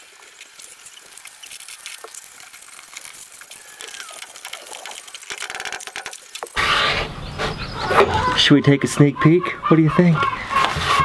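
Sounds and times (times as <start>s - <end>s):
falling chirp: 6.6s - 9.3s.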